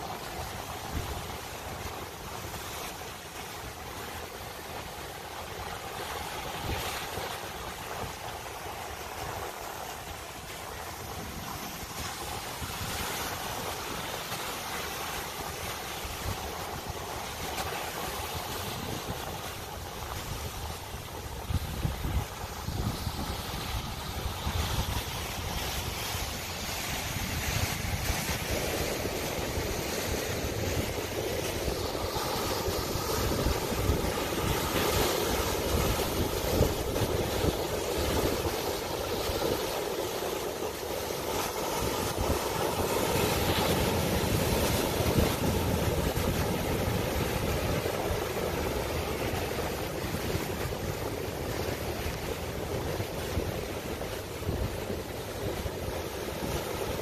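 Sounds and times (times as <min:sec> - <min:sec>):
ocean surf breaking over rocks: 0:00.0 - 0:57.0
wind buffeting microphone: 0:15.3 - 0:57.0.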